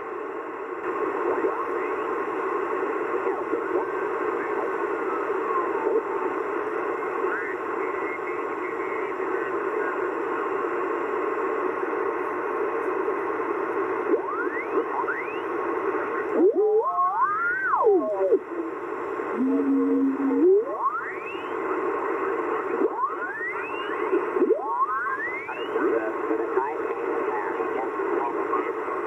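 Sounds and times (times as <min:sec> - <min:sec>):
radio static hiss: 0:00.0 - 0:29.0
wavering radio tone: 0:13.3 - 0:29.0
rising radio whistles: 0:14.1 - 0:25.9.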